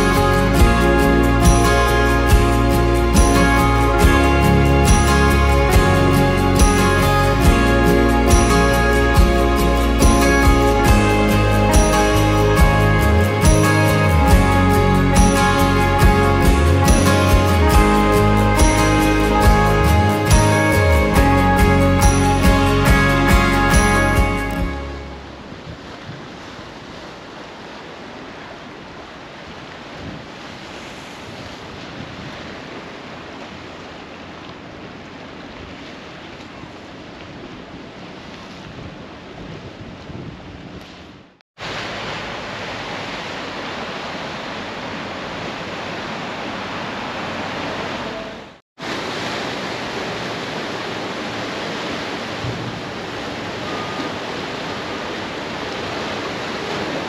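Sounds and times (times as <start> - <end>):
sea surf: 0.0 - 57.0
wind buffeting microphone: 36.6 - 41.2.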